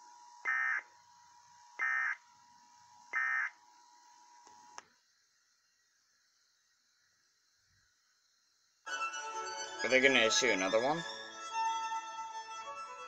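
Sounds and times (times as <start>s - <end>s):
buzzing data bursts: 0.4s - 0.9s, 1.8s - 2.2s, 3.1s - 3.6s
click: 4.4s - 4.9s.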